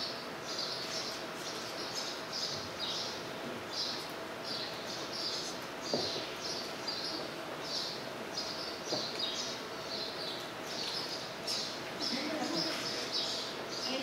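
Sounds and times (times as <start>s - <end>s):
background noise: 0.0s - 14.0s
bird chirping: 0.0s - 14.0s
soft knock: 5.9s - 6.2s.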